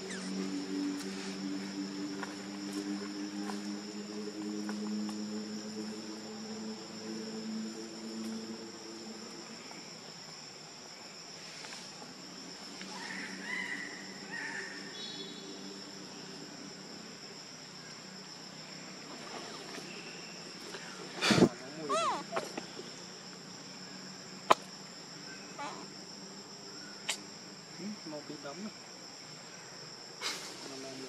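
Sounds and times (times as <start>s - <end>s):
low droning hum: 0.0s - 10.2s
forest insects buzzing: 0.0s - 31.0s.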